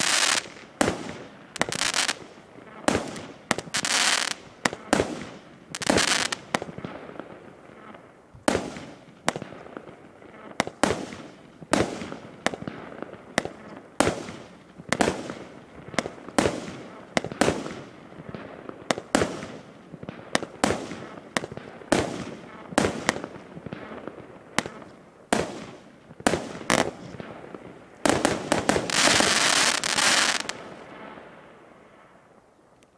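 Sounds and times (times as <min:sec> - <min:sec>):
fireworks shots and bursts: 0:00.0 - 0:31.5
dense fireworks crackling: 0:00.0 - 0:32.4.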